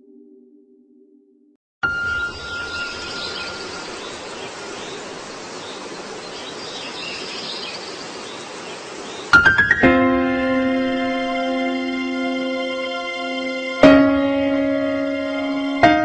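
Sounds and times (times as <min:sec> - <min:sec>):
faint high chirps: 0:01.8 - 0:08.0
music: 0:09.4 - 0:16.0.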